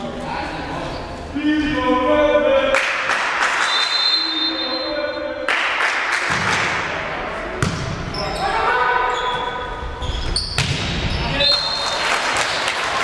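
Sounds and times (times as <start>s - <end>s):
voices shouting and echoing: 0.0s - 10.2s
referee's whistle: 3.6s - 5.3s, 11.3s - 11.9s
volleyball being struck: 7.6s - 8.0s, 10.6s - 11.0s.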